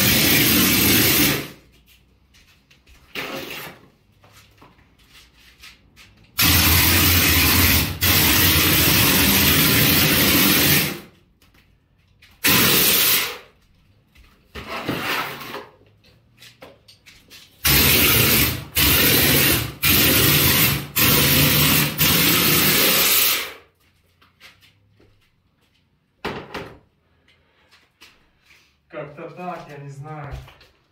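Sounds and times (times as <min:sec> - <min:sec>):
plaster sprayer air bursts: 0:00.0 - 0:01.6, 0:06.4 - 0:11.1, 0:12.4 - 0:13.5, 0:17.6 - 0:23.6.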